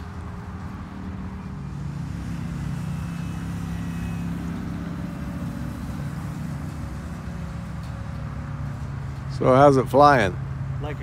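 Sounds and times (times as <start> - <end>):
model plane propeller droning: 0.0 - 7.7.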